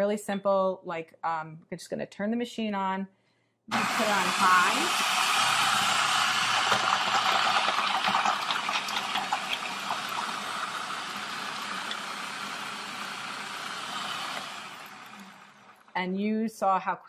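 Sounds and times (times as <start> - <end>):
food processor whirring: 3.7 - 16.0.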